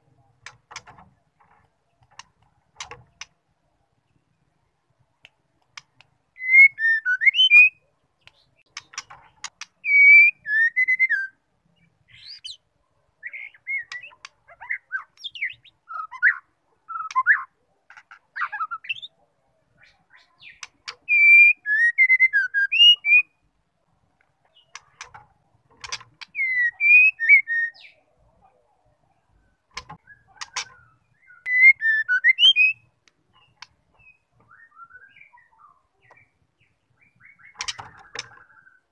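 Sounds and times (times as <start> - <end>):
sharp clicks: 0.4 - 3.4, 5.2 - 6.2, 8.2 - 9.8, 24.2 - 26.4, 29.7 - 30.8
bird whistling song: 6.4 - 8.9, 9.6 - 11.4, 12.1 - 12.6, 13.2 - 17.6, 18.4 - 19.1, 19.8 - 23.4, 26.2 - 28.0, 30.0 - 38.9.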